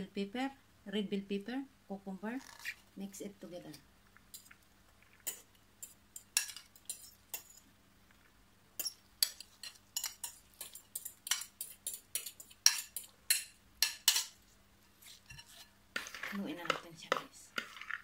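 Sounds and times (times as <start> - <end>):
metal spoon scraping a dish: 5.2 - 7.7, 8.8 - 14.4, 15.0 - 18.0.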